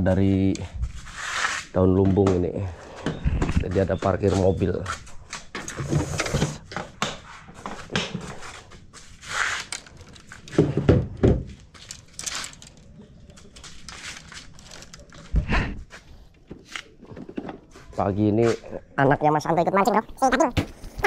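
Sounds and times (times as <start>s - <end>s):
fishing tackle knocking and rustling: 6.6s - 15.5s.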